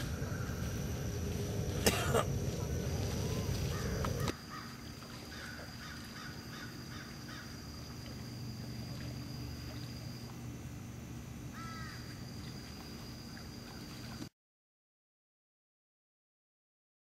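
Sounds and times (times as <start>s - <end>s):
faint calls: 0.0s - 10.4s, 11.5s - 14.2s
steady low hum: 0.0s - 14.3s.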